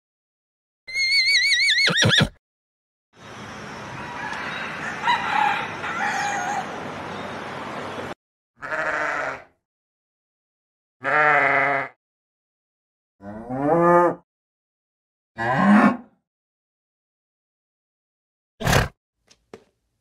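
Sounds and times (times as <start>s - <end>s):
rooster crowing: 4.0s - 6.8s
sheep bleating: 8.6s - 9.5s, 11.0s - 12.0s.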